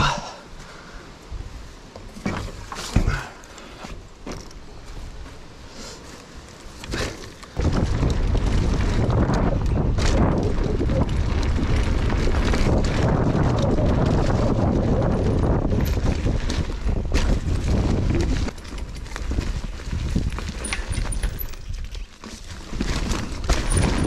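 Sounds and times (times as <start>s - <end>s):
tyres on dirt and leaves: 0.0s - 24.0s
bike knocking and rattling: 1.8s - 24.0s
wind buffeting microphone: 7.6s - 22.0s.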